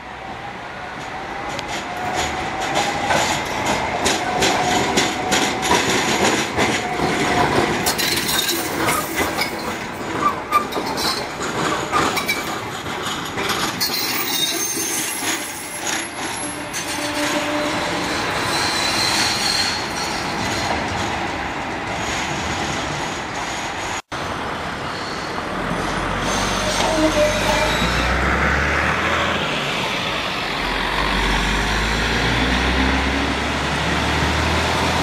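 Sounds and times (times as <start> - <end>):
tram wheels clicking over rail joints: 1.0 - 24.0
wheel squeal on track: 26.2 - 28.2.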